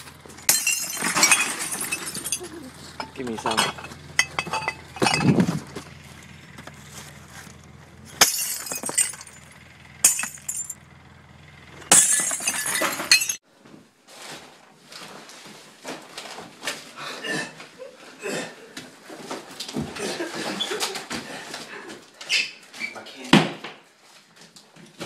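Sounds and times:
knocks and rustling: 0.0s - 9.3s
glass smashing: 0.4s - 5.6s, 8.2s - 10.8s, 11.9s - 13.4s.

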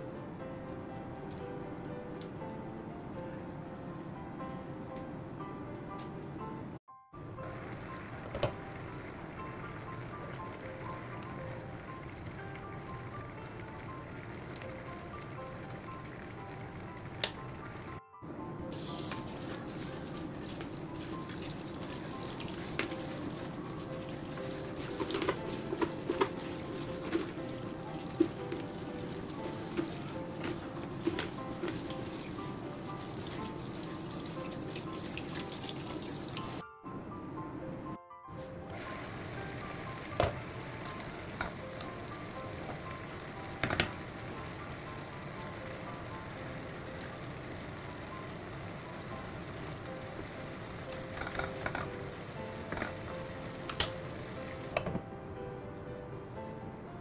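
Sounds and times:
faint background music: 0.0s - 57.0s
stew simmering and sizzling: 7.2s - 36.6s, 38.5s - 55.0s
tap running into colander: 8.1s - 11.5s, 18.8s - 36.6s, 38.7s - 48.3s, 50.9s - 55.0s
small splashes and clicks: 19.0s - 36.6s.

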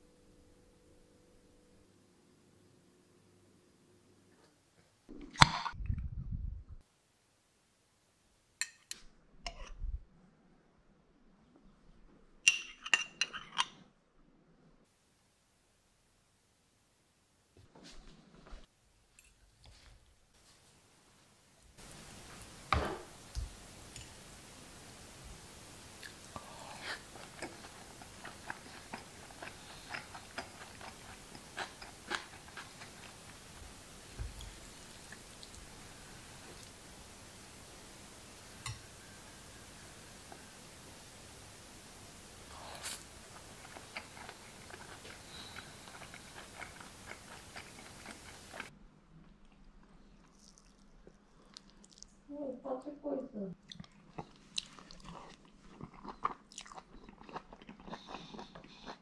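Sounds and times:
person chewing food: 26.0s - 33.8s, 42.5s - 52.2s, 53.6s - 59.0s.

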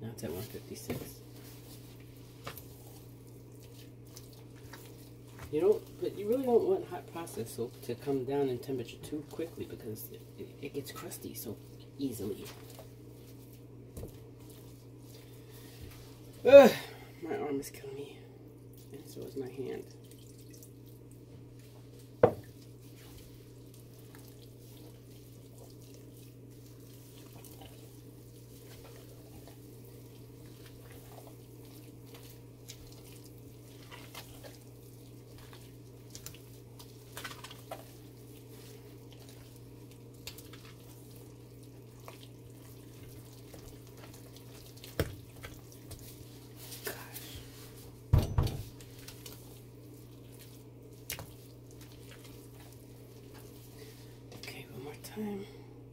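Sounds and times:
steady low hum: 0.0s - 55.9s
spatula squelching and scraping: 0.2s - 17.1s, 18.7s - 55.1s.

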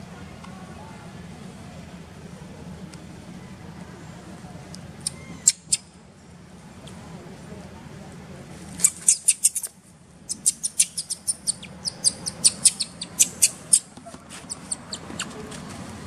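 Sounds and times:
baby monkey squeaking: 5.0s - 5.9s, 8.8s - 15.4s.

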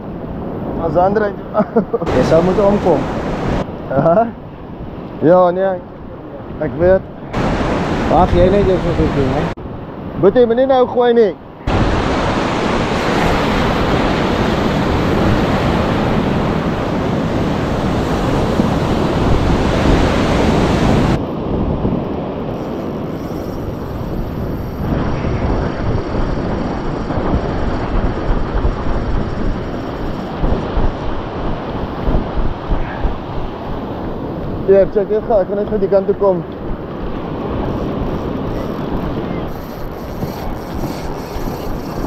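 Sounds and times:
surf on shore: 0.0s - 42.0s
wind buffeting microphone: 11.4s - 42.0s.

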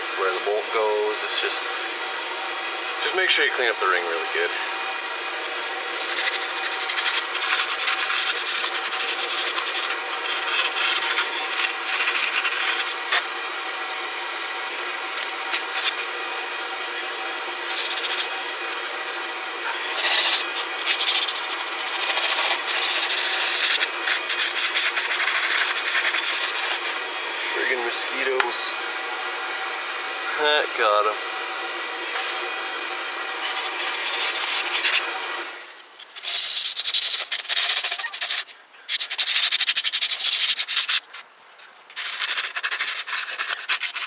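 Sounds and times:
sandpaper scrubbing metal: 5.4s - 13.3s, 15.2s - 16.1s, 17.6s - 18.5s, 19.6s - 27.0s, 33.3s - 44.0s.

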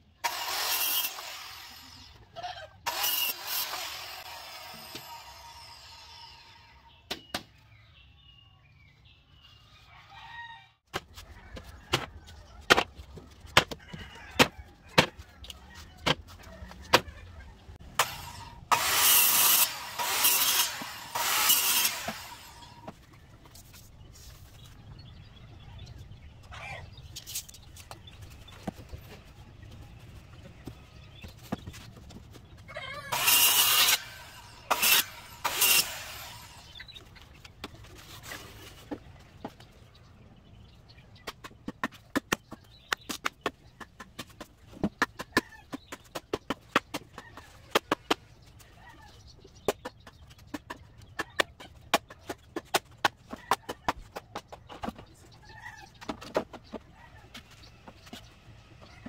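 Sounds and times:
circular saw cutting bamboo: 0.2s - 2.2s, 2.8s - 6.9s, 17.9s - 22.9s, 33.0s - 36.9s
chickens clucking: 11.1s - 17.9s, 25.6s - 33.2s, 36.7s - 59.0s.

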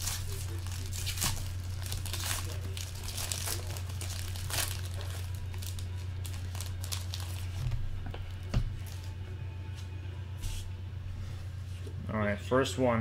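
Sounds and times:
foil wrapper crinkling: 0.0s - 7.7s
steady low hum: 0.0s - 13.0s.

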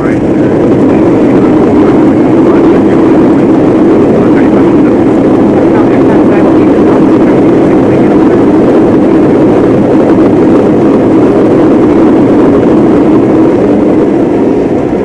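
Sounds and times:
jet engines reverse thrust roar: 0.0s - 15.0s.

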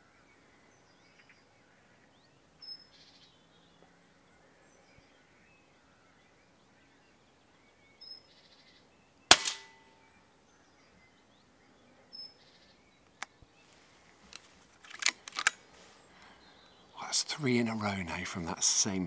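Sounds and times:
faint bird chirps: 0.0s - 14.0s
air rifle shot: 9.3s - 9.8s.

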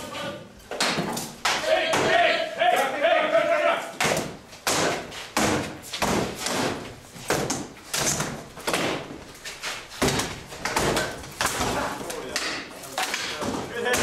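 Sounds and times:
swords hitting shields: 0.7s - 2.4s, 4.0s - 9.2s, 9.9s - 14.0s.

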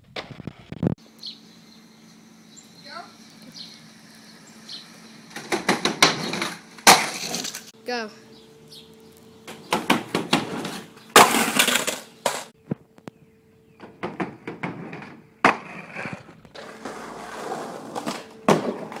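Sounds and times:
skateboard wheels rolling on boards: 5.2s - 7.7s, 9.5s - 12.5s, 13.8s - 19.0s
skateboard clacking down: 9.7s - 12.5s.

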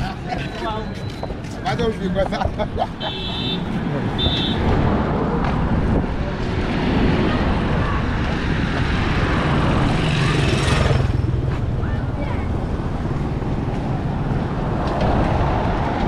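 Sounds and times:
street traffic noise: 0.0s - 16.0s
vehicle passing close by: 3.6s - 11.6s.

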